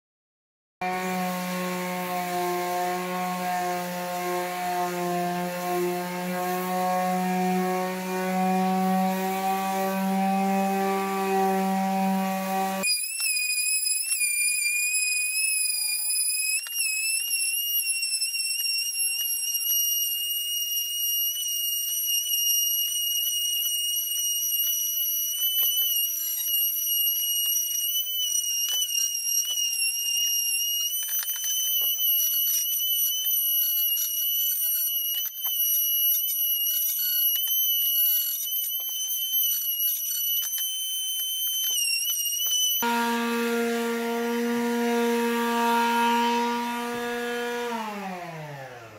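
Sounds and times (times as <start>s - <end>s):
sander pad scraping wood: 0.8s - 12.8s, 42.8s - 48.9s
palm sander whining: 0.8s - 18.0s, 18.9s - 48.9s.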